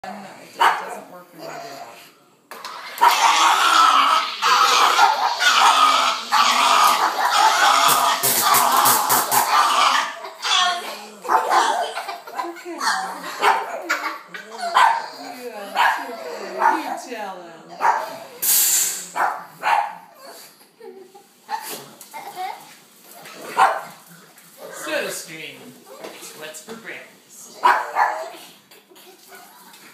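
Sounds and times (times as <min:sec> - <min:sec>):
dog barking: 0:00.6 - 0:01.0, 0:03.0 - 0:03.6, 0:04.5 - 0:08.6, 0:11.3 - 0:11.9, 0:12.9 - 0:15.1, 0:15.7 - 0:17.0, 0:17.8 - 0:18.2, 0:19.2 - 0:20.1, 0:23.5 - 0:24.0, 0:27.6 - 0:28.3
dog vocalizing: 0:00.6 - 0:18.4
soda maker hissing bursts: 0:18.4 - 0:19.2.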